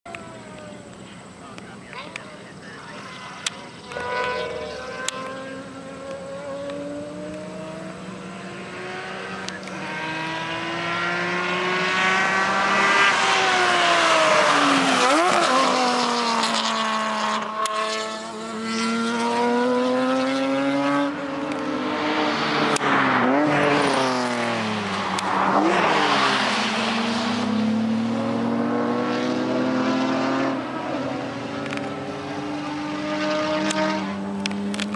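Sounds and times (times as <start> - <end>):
race car engine accelerating: 0.1 - 34.9.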